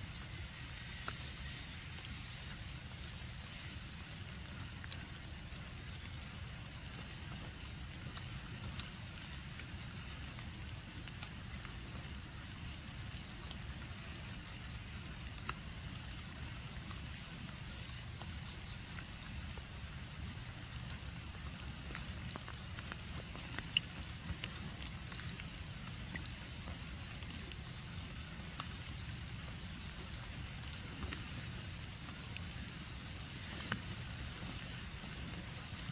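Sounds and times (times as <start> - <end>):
raindrops ticking on leaves: 0.0 - 35.9.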